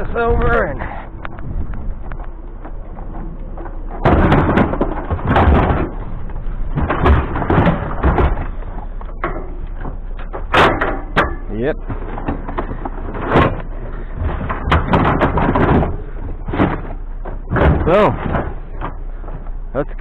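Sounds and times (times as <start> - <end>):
thuds scrapes and clanks: 0.0 - 20.0.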